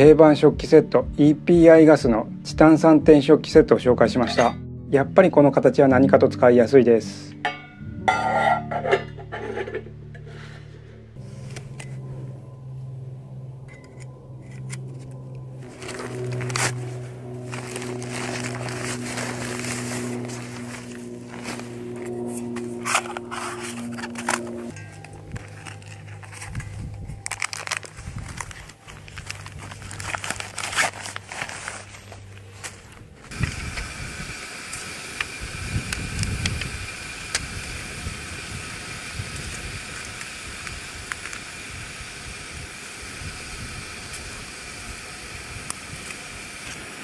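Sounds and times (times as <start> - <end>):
background music: 0.0 - 33.2
metal pots clinking and scraping: 4.1 - 4.6, 7.4 - 10.4, 17.5 - 26.6
fabric sacks rustling: 15.6 - 33.3.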